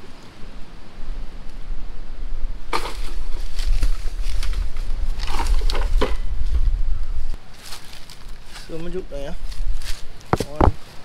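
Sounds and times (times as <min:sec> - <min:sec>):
steady low rumble: 0:00.0 - 0:07.5
wooden pole knocking palm fronds: 0:02.7 - 0:06.2, 0:09.8 - 0:10.8.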